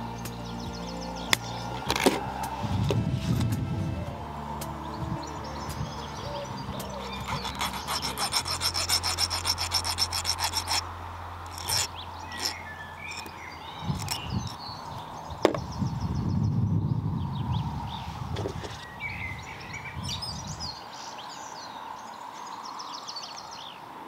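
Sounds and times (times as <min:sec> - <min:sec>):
hand file rasping on metal: 0:06.8 - 0:10.8, 0:11.4 - 0:13.3.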